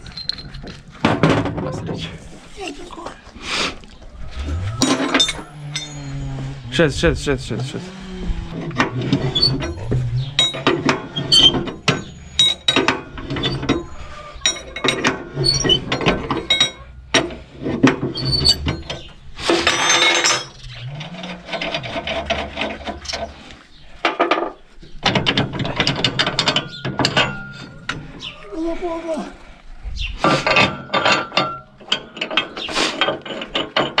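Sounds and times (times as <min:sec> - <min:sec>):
metallic rasp: 0:04.3 - 0:23.7
spanners clinking on metal: 0:04.4 - 0:06.7, 0:08.6 - 0:23.4, 0:24.0 - 0:28.2, 0:30.2 - 0:34.0.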